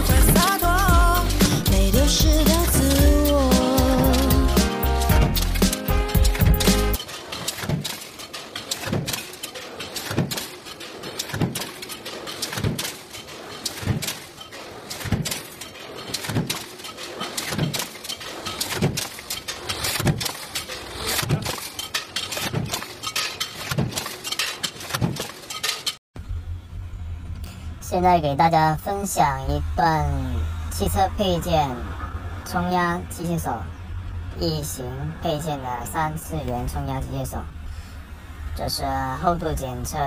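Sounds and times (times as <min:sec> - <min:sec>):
stamping press heavy thuds: 0:00.0 - 0:08.0, 0:08.7 - 0:13.1, 0:13.7 - 0:14.3, 0:14.9 - 0:20.4
tooling rattling and clicking: 0:00.0 - 0:26.0.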